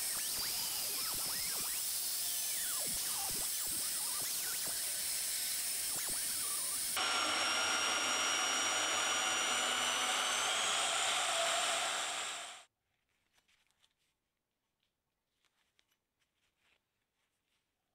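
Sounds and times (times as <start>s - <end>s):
bandsaw cutting steel: 0.0s - 12.6s.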